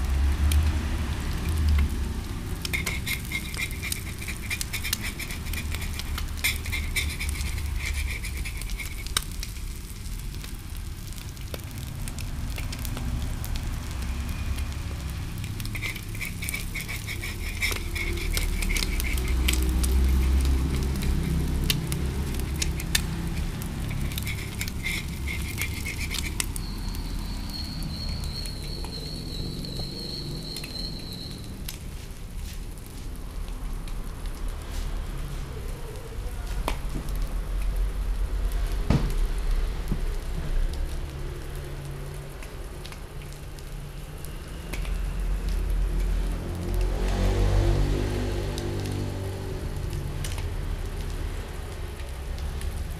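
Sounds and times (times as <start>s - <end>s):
food sizzling in a wok: 0.0s - 33.0s
metal spoon scraping a pan: 2.5s - 10.4s, 15.4s - 29.9s
wavering high whistle: 26.6s - 31.5s.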